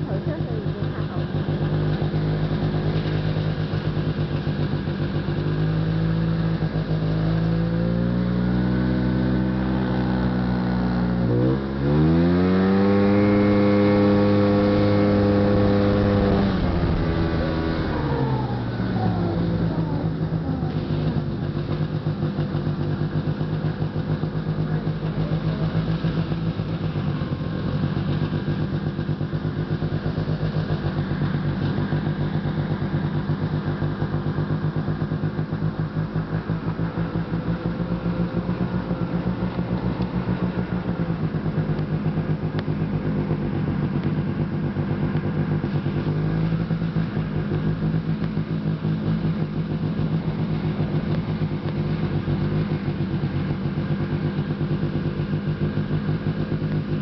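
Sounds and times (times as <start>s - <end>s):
snowmobile engine running: 0.0s - 57.0s.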